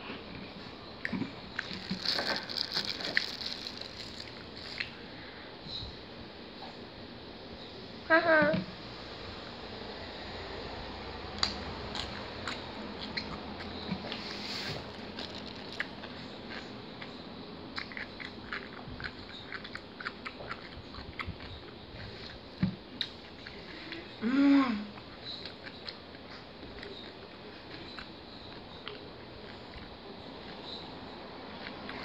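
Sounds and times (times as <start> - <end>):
person chewing food: 1.0 - 5.0, 11.4 - 24.2.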